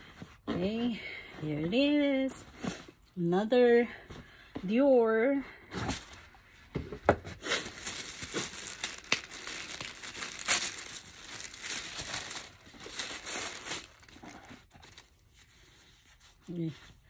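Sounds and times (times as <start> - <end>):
paper packaging crinkling: 7.4 - 15.4.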